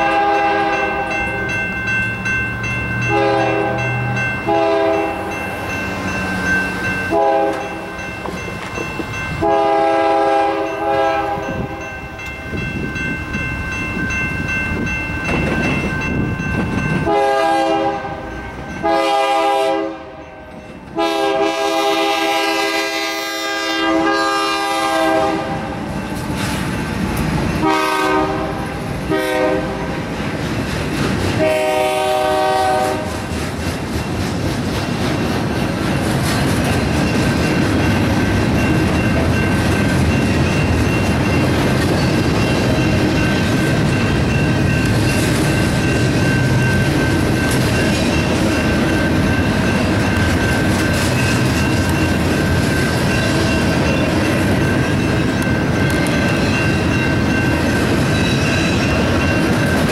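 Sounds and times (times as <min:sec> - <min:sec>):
locomotive horn blasts: 0:00.0 - 0:01.2, 0:03.1 - 0:03.9, 0:04.5 - 0:05.3, 0:07.1 - 0:07.8, 0:09.4 - 0:11.6, 0:17.0 - 0:20.2, 0:21.0 - 0:25.7, 0:27.6 - 0:29.9, 0:31.4 - 0:33.1
crossing bells ringing: 0:00.0 - 0:59.9.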